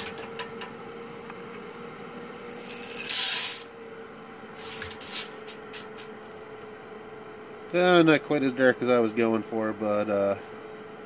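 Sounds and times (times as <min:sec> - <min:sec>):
cooler fan hum: 0:00.0 - 0:11.0
beans clicking: 0:02.5 - 0:03.7
coffee beans rattling into strainer: 0:02.5 - 0:03.7.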